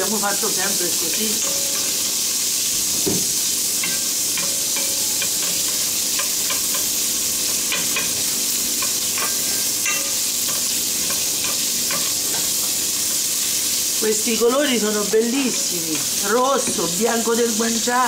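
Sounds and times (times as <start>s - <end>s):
meat sizzling in a pan: 0.0s - 18.0s.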